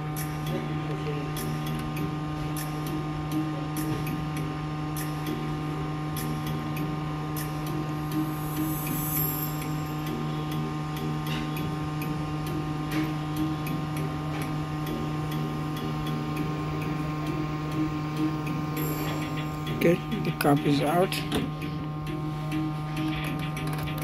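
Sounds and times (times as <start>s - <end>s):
hot air station blowing: 8.0s - 10.6s.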